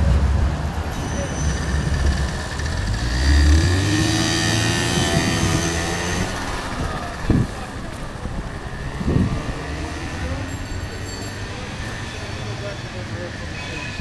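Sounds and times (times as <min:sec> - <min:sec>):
traffic on wet street: 0:00.0 - 0:14.0
motor scooter engine passing: 0:01.5 - 0:11.0.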